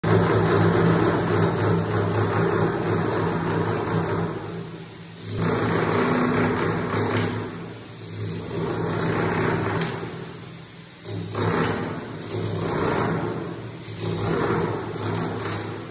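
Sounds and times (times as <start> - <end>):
demolition hammer chiselling wall: 0.0 - 10.4, 11.0 - 15.9.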